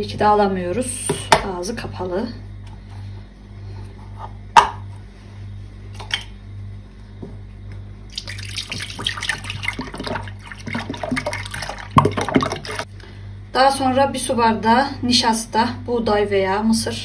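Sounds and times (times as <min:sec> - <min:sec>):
milk pouring into a metal pot: 0:08.1 - 0:12.9.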